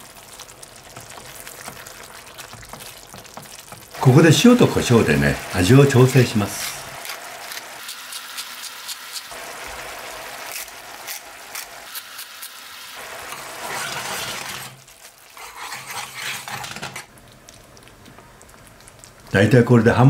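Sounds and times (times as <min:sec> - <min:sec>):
sauce bubbling and sizzling: 0:00.0 - 0:20.0
metal spoon scraping a pan: 0:13.2 - 0:17.1.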